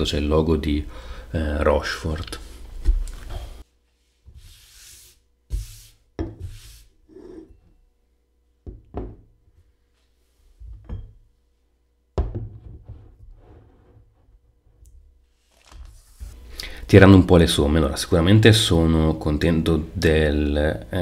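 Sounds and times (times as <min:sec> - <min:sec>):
glass knocking on a table: 0:08.7 - 0:09.2, 0:12.2 - 0:13.1.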